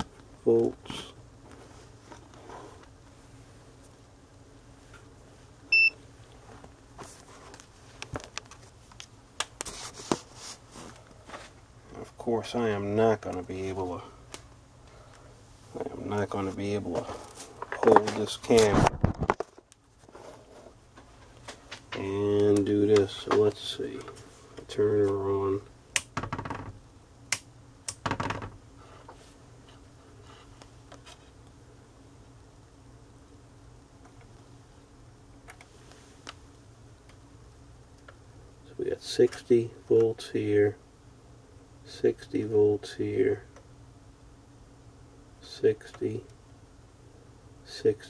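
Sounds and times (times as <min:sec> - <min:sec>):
faint steady hum: 0:00.0 - 0:48.0
multimeter beep: 0:05.7 - 0:06.0
clicks and knocks of handling: 0:17.6 - 0:19.8
test probes clicking: 0:25.9 - 0:26.2.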